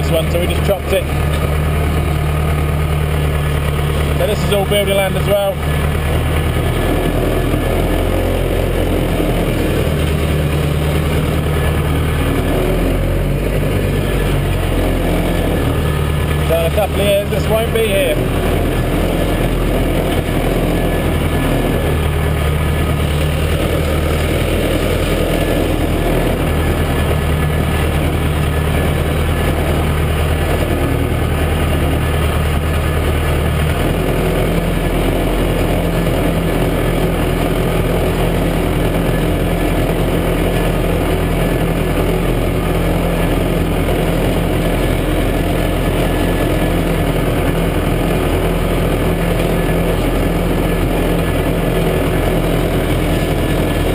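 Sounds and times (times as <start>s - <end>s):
tractor diesel engine running: 0.0s - 53.9s.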